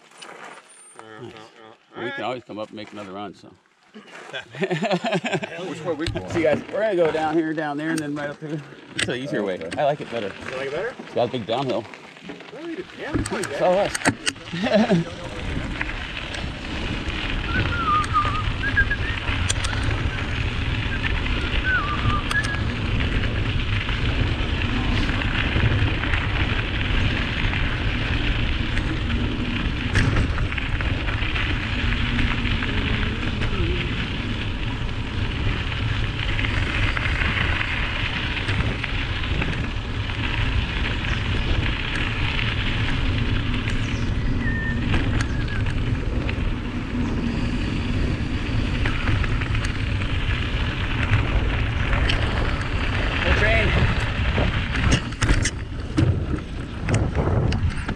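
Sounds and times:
tyres crackling on gravel: 0.0s - 57.9s
wind rumble on microphone: 12.9s - 57.9s.

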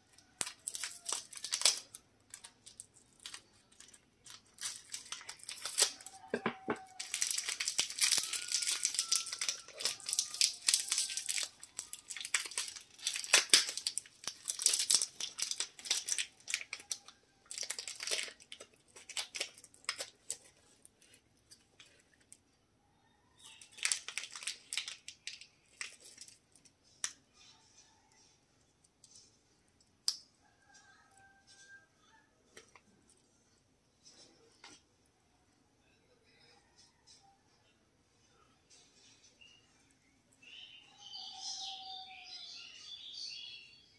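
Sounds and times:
cellophane wrappers crinkling: 0.0s - 22.4s, 23.4s - 27.2s.

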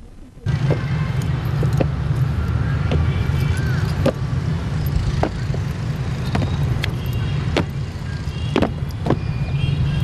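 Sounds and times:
boots marching on stone: 0.6s - 4.3s, 5.1s - 9.3s.

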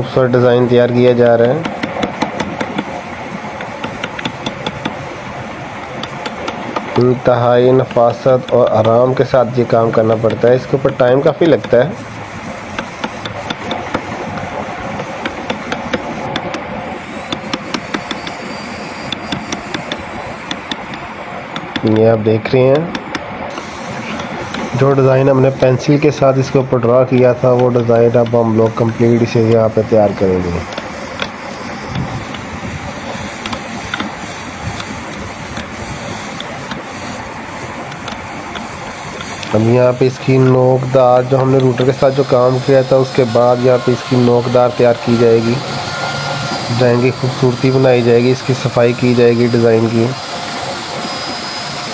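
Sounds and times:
steady background hum: 0.0s - 51.9s
steady hiss: 0.0s - 51.9s.

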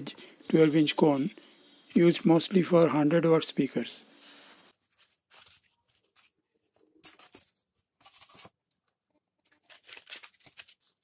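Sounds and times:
paper cones scraping and rustling: 4.4s - 6.4s, 7.0s - 8.6s.

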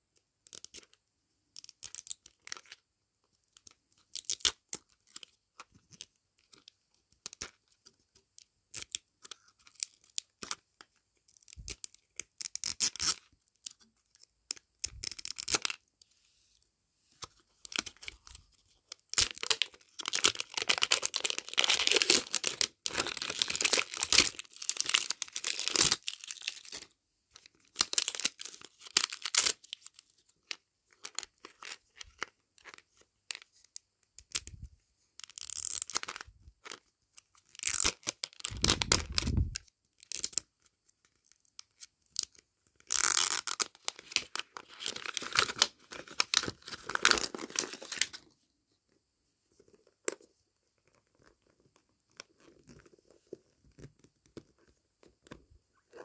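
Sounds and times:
plastic wrapper tearing: 14.5s - 15.8s, 17.6s - 33.4s, 35.2s - 36.8s, 37.5s - 40.4s, 41.8s - 48.2s
plastic wrapper crinkling: 17.3s - 33.6s, 35.2s - 40.4s, 41.2s - 48.3s.

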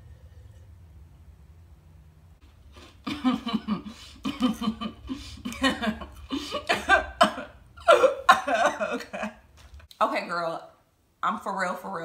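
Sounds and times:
woman sobbing: 3.1s - 9.4s.

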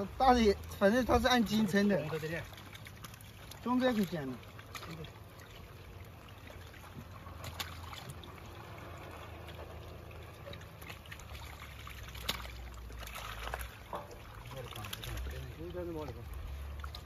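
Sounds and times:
fish splashing: 0.0s - 17.0s
water trickling and sloshing: 0.0s - 17.0s.

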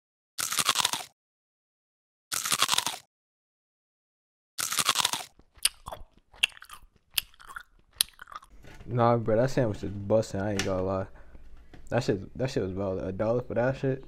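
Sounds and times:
crunchy bites into fried sandwich: 0.4s - 1.1s, 2.3s - 3.1s, 4.6s - 8.4s
faint wet chewing clicks: 5.4s - 8.5s.

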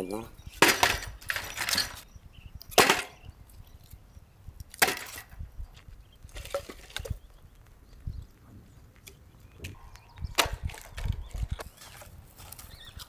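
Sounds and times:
firewood clattering and knocking: 0.6s - 2.0s, 2.7s - 3.3s, 4.7s - 5.4s, 6.3s - 7.2s, 10.3s - 12.1s.

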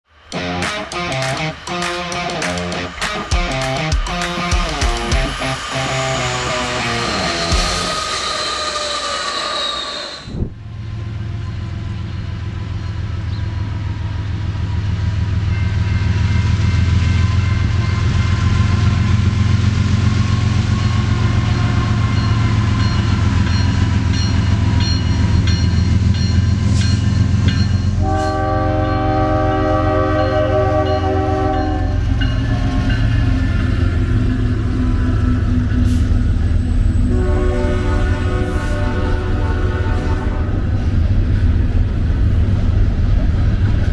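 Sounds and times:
rolling rail cars: 0.1s - 43.9s
locomotive engine rumble: 0.2s - 15.5s, 17.4s - 43.9s
locomotive horn blast: 28.0s - 33.1s, 33.8s - 41.1s.

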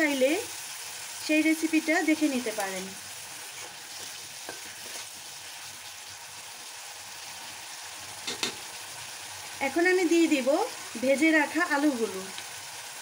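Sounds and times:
stems sizzling in oil: 0.0s - 13.0s
spatula knocking on pan: 8.3s - 8.6s.

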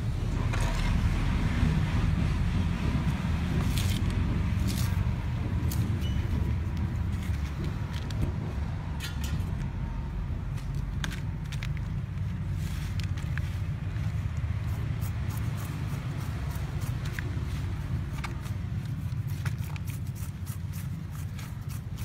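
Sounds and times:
low rumble: 0.0s - 14.8s.

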